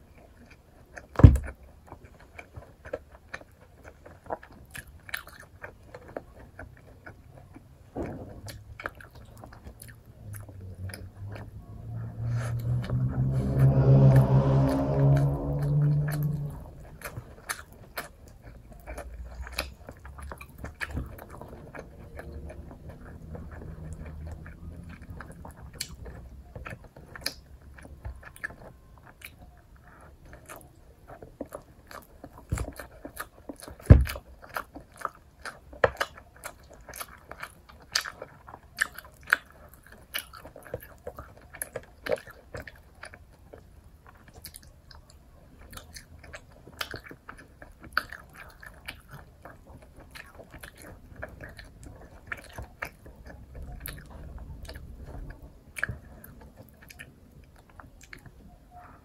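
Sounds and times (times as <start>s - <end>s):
person biting and chewing food: 0.3s - 58.2s
thump: 8.0s - 8.5s.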